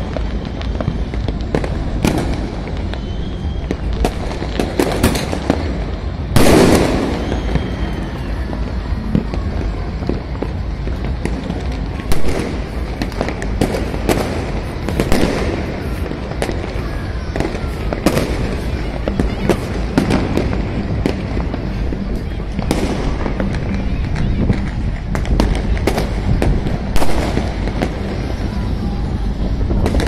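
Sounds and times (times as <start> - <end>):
fireworks cracking and popping: 0.0 - 30.0
loud fireworks bangs: 0.0 - 30.0.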